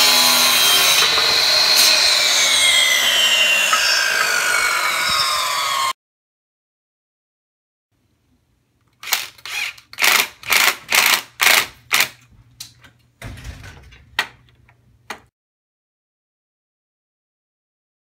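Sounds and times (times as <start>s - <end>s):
cordless drill short bursts: 9.0s - 11.2s.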